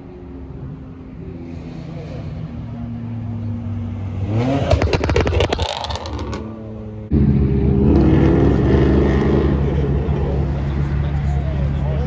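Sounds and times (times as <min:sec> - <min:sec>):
car engine revving: 0:01.4 - 0:11.9
exhaust crackles and pops: 0:04.6 - 0:06.5.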